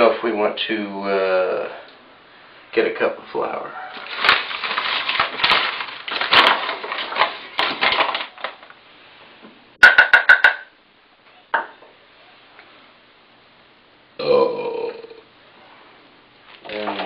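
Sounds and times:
knock against a dish: 9.8 - 10.7.

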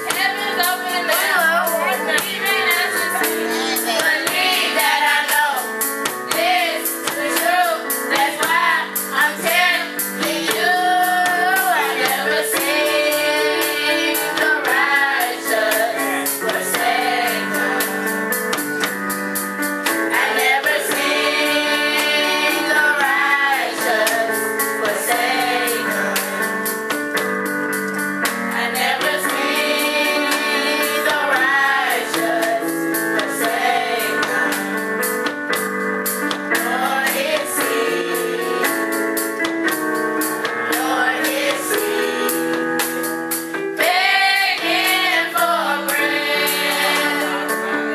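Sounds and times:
choir singing gospel song: 0.0 - 27.3, 28.2 - 35.4, 36.4 - 39.5, 40.4 - 47.9
percussion beat: 0.0 - 47.7
instrumental backing: 0.0 - 47.9.

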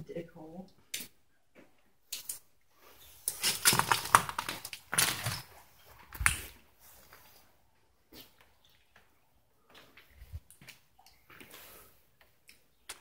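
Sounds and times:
footsteps crunching over debris: 3.2 - 7.4.

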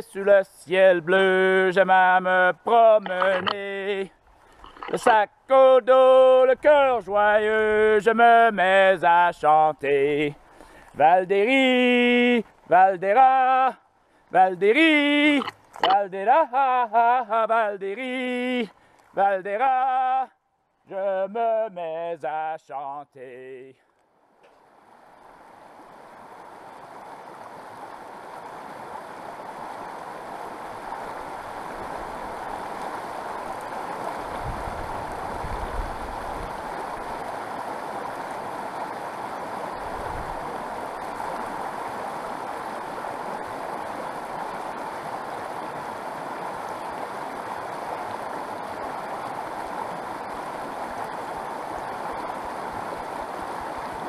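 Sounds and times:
creek rushing over rocks: 0.0 - 22.5, 24.5 - 54.0.

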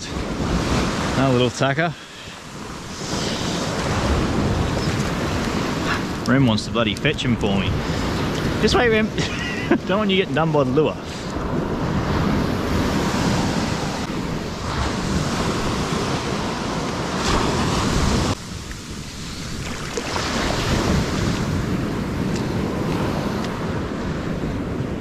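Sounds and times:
ocean surf breaking on beach: 0.0 - 25.0
wind buffeting microphone: 2.5 - 25.0.

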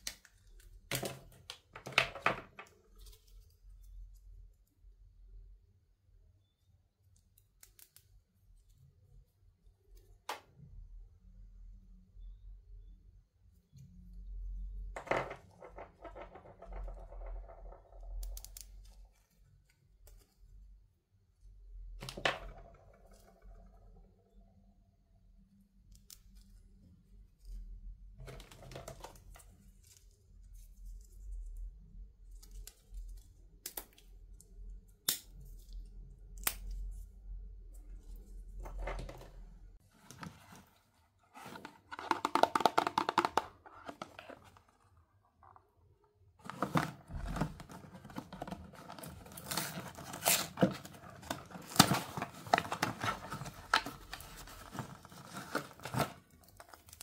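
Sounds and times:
plastic packaging clicks and taps: 41.9 - 44.2.

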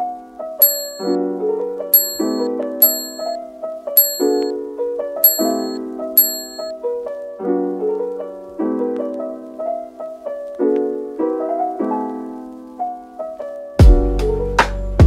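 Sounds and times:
soft piano chords: 2.0 - 3.4.

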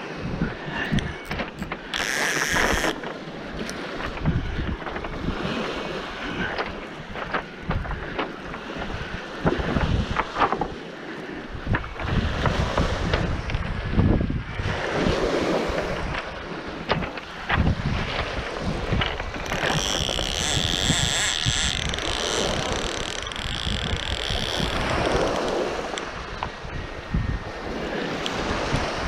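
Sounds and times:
wind buffeting microphone: 0.0 - 29.0
short crunches and clicks: 0.9 - 3.8, 19.0 - 26.1.

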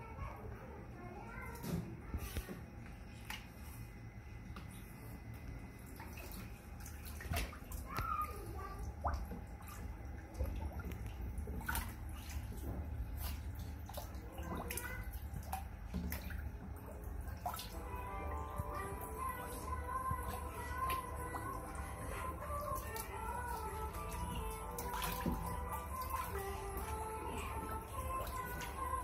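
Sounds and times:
otter splashing water: 5.8 - 29.0.

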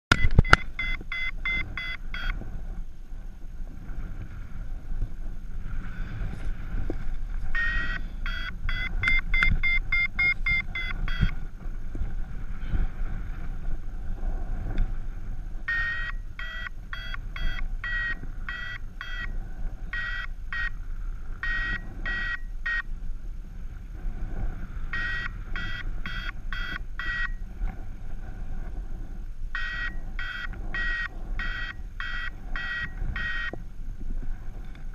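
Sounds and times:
variometer short high beeps: 0.1 - 2.4, 7.5 - 11.4, 15.7 - 20.8, 21.4 - 22.9, 24.9 - 27.4, 29.5 - 33.6
wind noise on microphone: 0.1 - 34.9.

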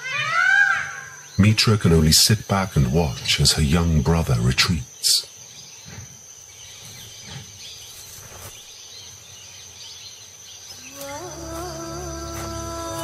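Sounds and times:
faint bird chirps: 3.1 - 13.0
high-pitched insect drone: 10.1 - 13.0.

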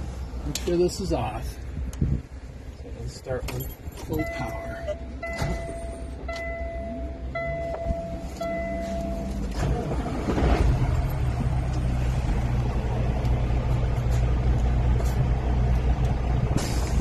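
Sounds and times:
truck engine cranking and starting: 3.5 - 17.0
dashboard warning chime beeping: 3.6 - 9.6
truck engine idling: 3.6 - 17.0.

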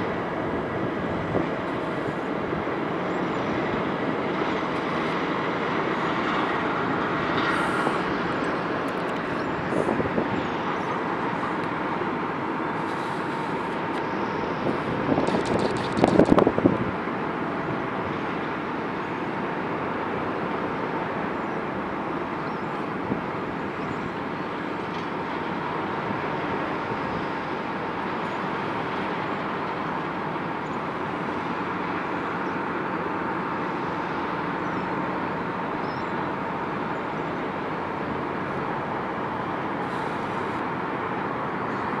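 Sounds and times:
excavator machinery drone: 0.0 - 42.0.

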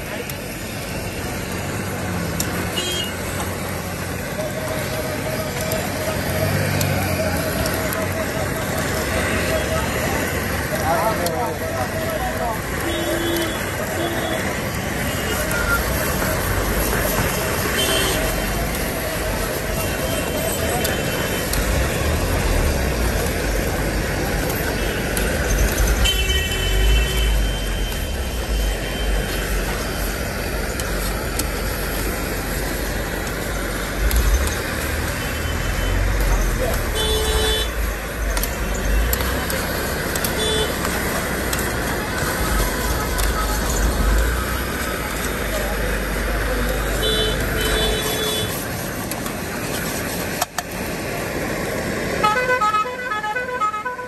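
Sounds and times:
gas burner rushing: 0.0 - 52.8
street traffic: 0.0 - 54.0
vehicle horn honking: 2.8 - 3.2, 12.8 - 14.4, 17.7 - 18.3, 36.9 - 37.8, 40.3 - 40.8, 47.0 - 48.6, 52.2 - 54.0.

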